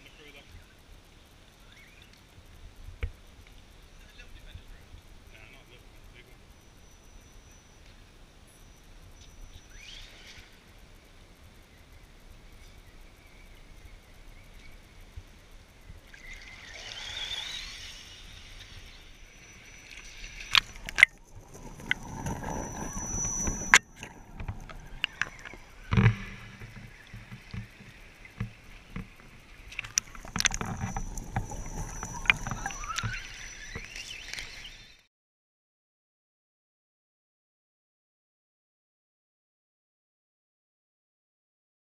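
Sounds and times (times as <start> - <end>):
water sloshing and splashing: 19.8 - 34.4
electric motor whining: 29.9 - 34.9.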